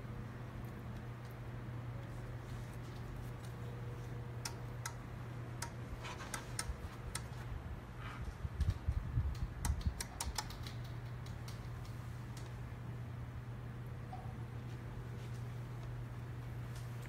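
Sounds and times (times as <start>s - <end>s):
steady low hum: 0.0s - 17.0s
small handling clicks and taps: 8.7s - 12.6s.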